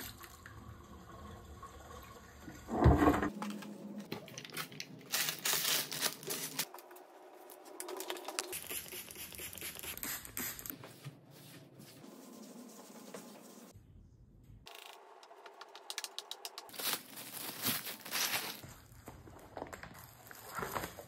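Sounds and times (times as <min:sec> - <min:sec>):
small items clicking and rustling: 0:03.4 - 0:06.9, 0:07.5 - 0:09.9, 0:14.7 - 0:18.6
spray bottle spritzing: 0:08.5 - 0:10.7.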